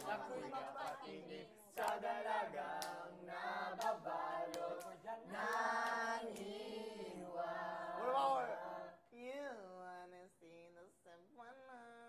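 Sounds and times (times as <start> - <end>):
young voices singing: 0.0 - 9.0.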